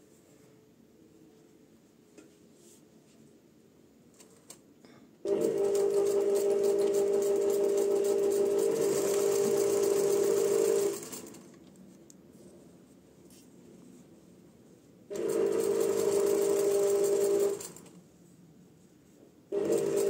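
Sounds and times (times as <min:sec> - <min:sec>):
sewing machine stitching: 0:05.3 - 0:11.5, 0:15.1 - 0:18.0, 0:19.5 - 0:20.0.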